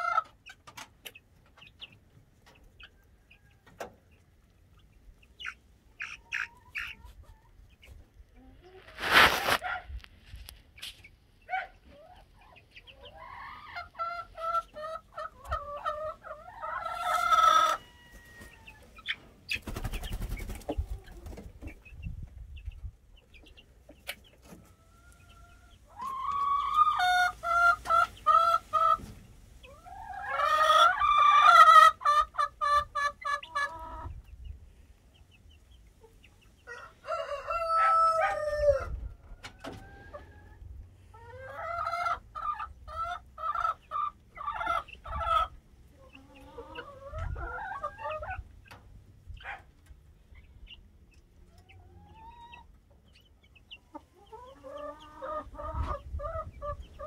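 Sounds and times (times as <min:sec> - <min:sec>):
chickens calling loudly: 0:00.0 - 0:57.0
chickens clucking: 0:00.0 - 0:57.0
rooster crowing: 0:36.7 - 0:38.9.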